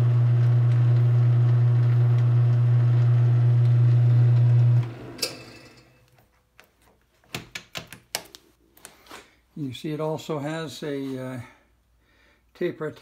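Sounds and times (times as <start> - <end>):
lathe motor humming: 0.0 - 5.4
lathe winding down: 0.0 - 5.9.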